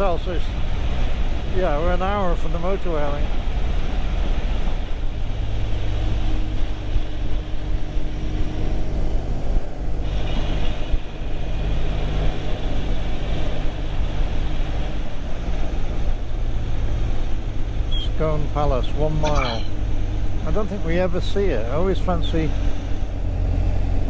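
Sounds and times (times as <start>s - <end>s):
wind and road noise: 0.0s - 24.0s.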